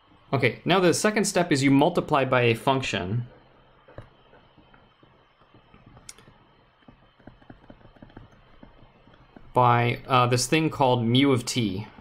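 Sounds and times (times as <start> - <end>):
stylus tapping on tablet screen: 3.9 - 9.4.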